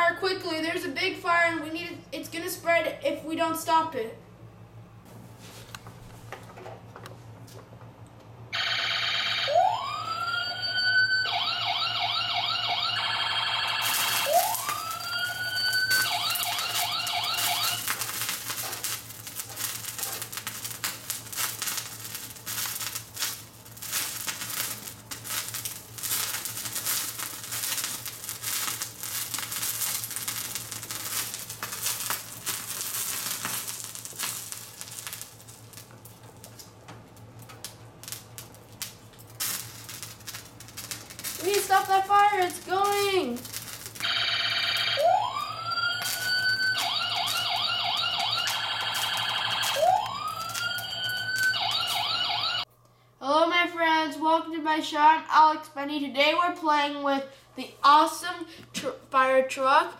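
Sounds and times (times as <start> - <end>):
toy electronic siren: 8.6 - 18.0, 44.0 - 52.6.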